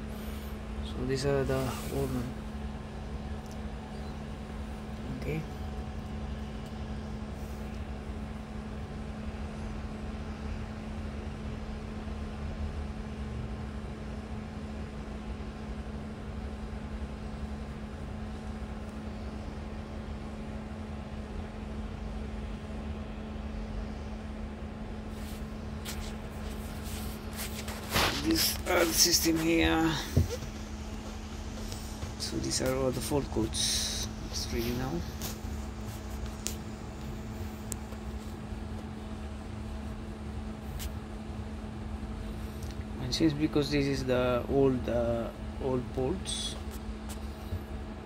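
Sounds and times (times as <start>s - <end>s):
bus engine idling: 0.0s - 11.2s, 13.1s - 48.0s.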